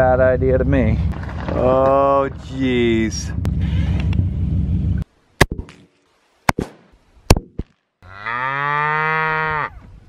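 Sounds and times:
cow mooing: 0:08.0 - 0:09.8.

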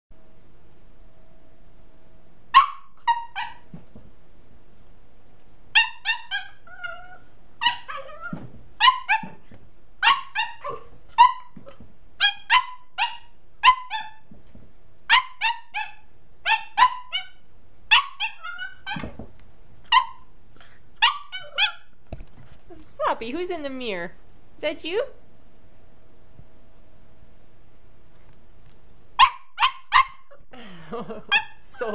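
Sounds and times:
puppy barking: 0:02.5 - 0:03.7, 0:05.8 - 0:09.4, 0:10.0 - 0:14.3, 0:15.1 - 0:19.1, 0:19.9 - 0:20.3, 0:21.0 - 0:21.9, 0:29.2 - 0:30.4, 0:31.3 - 0:31.9.

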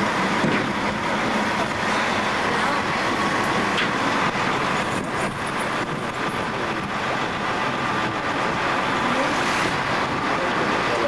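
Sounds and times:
engine and traffic noise: 0:00.0 - 0:11.0
vehicles driving over loading ramp: 0:00.0 - 0:11.0.

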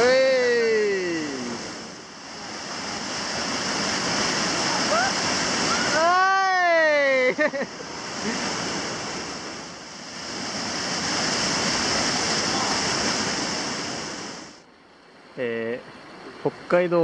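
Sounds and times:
whitewater rapids roaring: 0:00.0 - 0:14.6.

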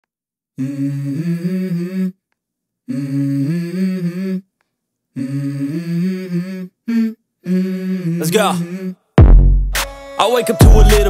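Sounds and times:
person humming a tune: 0:00.6 - 0:02.2, 0:02.9 - 0:04.5, 0:05.2 - 0:09.0, 0:10.0 - 0:11.0.

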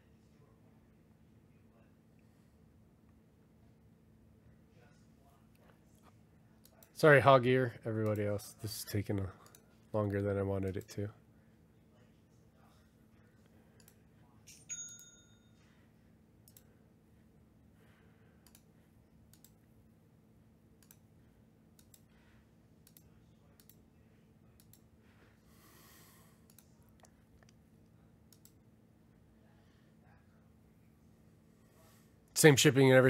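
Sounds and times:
computer mouse clicks: 0:10.6 - 0:11.0, 0:13.8 - 0:14.0, 0:16.4 - 0:16.7, 0:18.4 - 0:18.7, 0:19.3 - 0:19.6, 0:20.8 - 0:21.0, 0:21.7 - 0:22.1, 0:22.8 - 0:23.8, 0:24.6 - 0:24.9, 0:26.4 - 0:27.6, 0:28.3 - 0:28.6.

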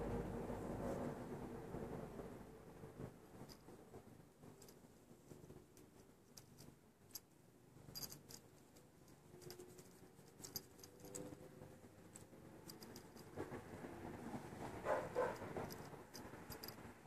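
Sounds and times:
handling rustle: 0:04.6 - 0:11.4
small bell on cat collar tinkling: 0:07.9 - 0:11.4, 0:12.0 - 0:13.4, 0:15.2 - 0:17.0.

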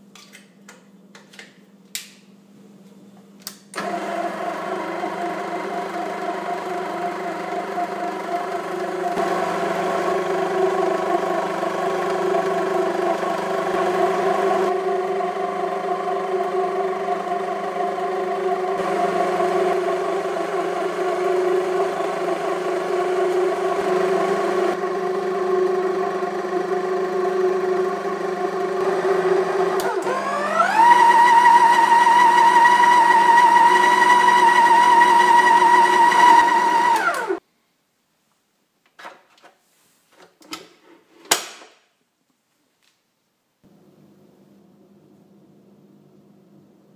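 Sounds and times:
stand mixer motor humming: 0:03.8 - 0:37.4.

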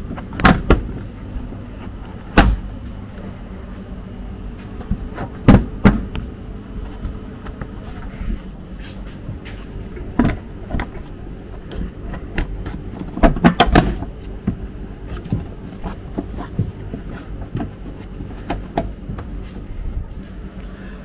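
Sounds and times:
steady low hum: 0:00.0 - 0:21.0
plastic lugs clicking and knocking: 0:00.1 - 0:01.0, 0:04.8 - 0:06.3, 0:10.0 - 0:19.4.

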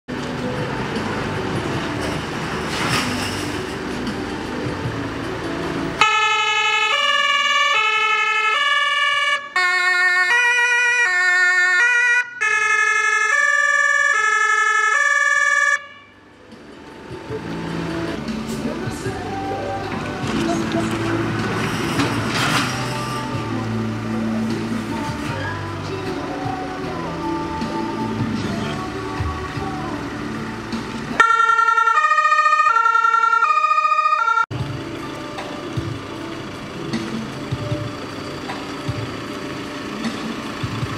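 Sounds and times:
two-tone emergency siren: 0:06.0 - 0:16.2, 0:31.2 - 0:34.6.

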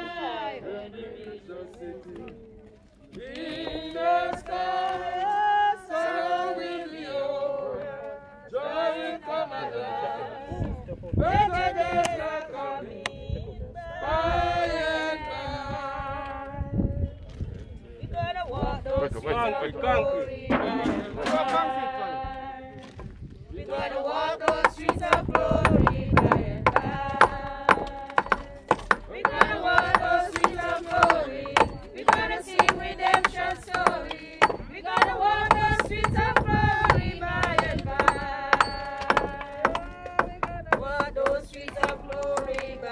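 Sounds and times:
congregation singing a hymn: 0:00.0 - 0:02.3, 0:03.2 - 0:16.7, 0:18.4 - 0:22.8, 0:23.5 - 0:42.9
percussive beats: 0:24.5 - 0:42.8.

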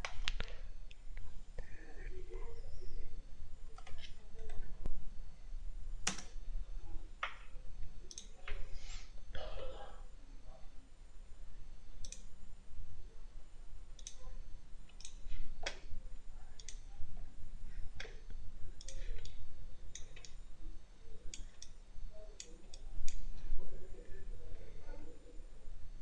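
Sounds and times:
low electrical hum: 0:00.0 - 0:26.0
computer mouse clicking: 0:06.0 - 0:06.4, 0:08.1 - 0:08.3, 0:12.0 - 0:12.3, 0:14.0 - 0:14.2, 0:14.9 - 0:15.8, 0:16.6 - 0:16.9, 0:18.8 - 0:20.4, 0:22.4 - 0:23.3.

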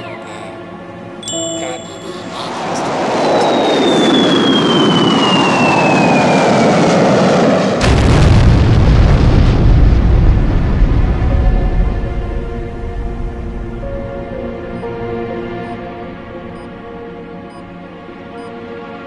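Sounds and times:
whoosh with falling whistle: 0:02.9 - 0:07.1
deep explosion rumble: 0:02.9 - 0:14.7.

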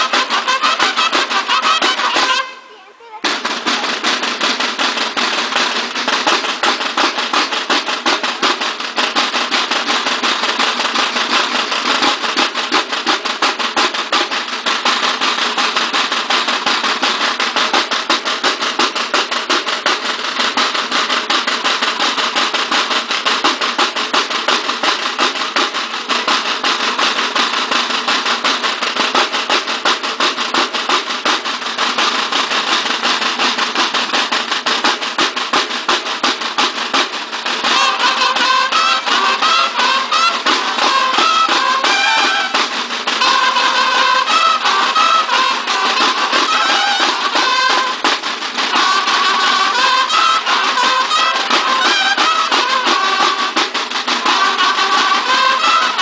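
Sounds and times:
marching snare drums: 0:00.0 - 0:56.0.

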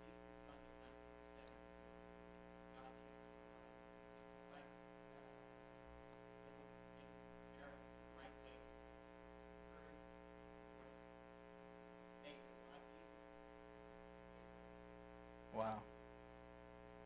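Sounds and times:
electrical mains hum: 0:00.0 - 0:17.0
faint person speaking: 0:15.5 - 0:15.9.

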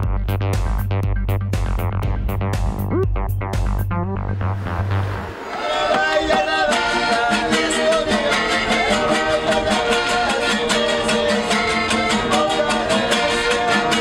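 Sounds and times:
acoustic guitars strummed: 0:05.5 - 0:14.0.

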